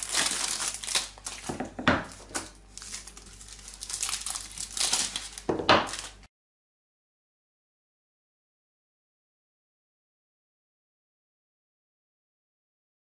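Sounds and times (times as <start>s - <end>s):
wrappers crinkling and tearing: 0.0s - 6.3s.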